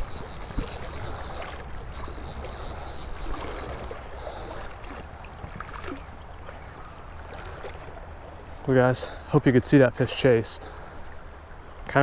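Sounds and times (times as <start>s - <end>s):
faint ticks: 0.0s - 4.8s.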